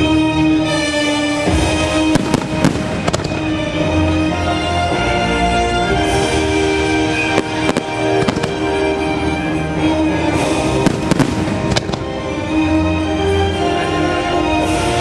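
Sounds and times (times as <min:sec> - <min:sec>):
orchestral music: 0:00.0 - 0:15.0
fireworks bursting bangs: 0:01.4 - 0:04.4, 0:06.0 - 0:09.0, 0:10.7 - 0:12.3.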